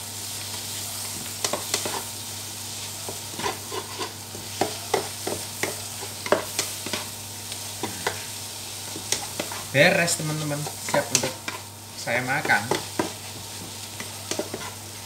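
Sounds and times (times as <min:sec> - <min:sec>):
food sizzling in a wok: 0:00.0 - 0:15.0
spatula scraping a pan: 0:01.4 - 0:02.2, 0:02.8 - 0:09.7, 0:10.3 - 0:11.7, 0:12.4 - 0:15.0
spatula clacking on metal: 0:03.4 - 0:07.1, 0:12.4 - 0:13.2, 0:14.0 - 0:14.8.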